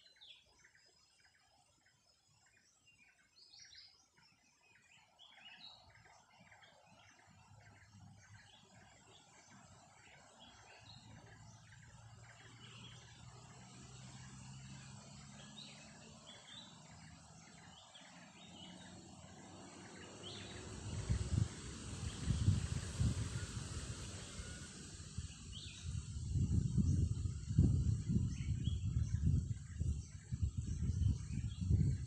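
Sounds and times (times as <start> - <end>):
faint insect hiss: 0.0 - 32.0
wind buffeting microphone: 10.9 - 32.0.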